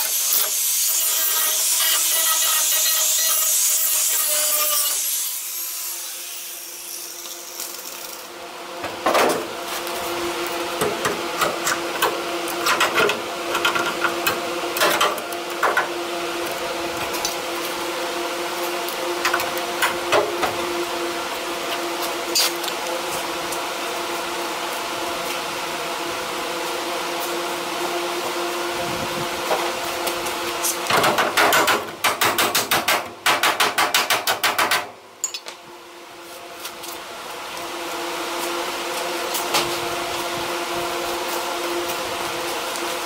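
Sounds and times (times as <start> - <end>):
steady shop hum: 0.0 - 43.0.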